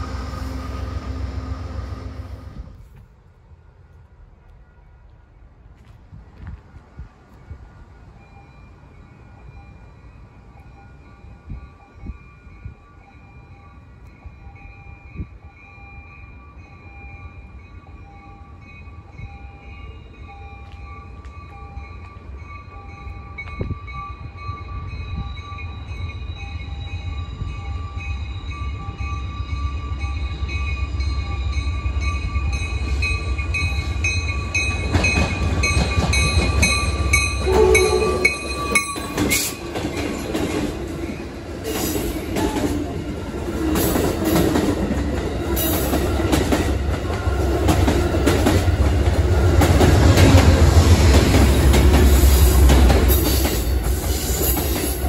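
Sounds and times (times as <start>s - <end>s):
diesel locomotives rumbling: 0.0s - 55.0s
train wheel and rail noise: 0.0s - 55.0s.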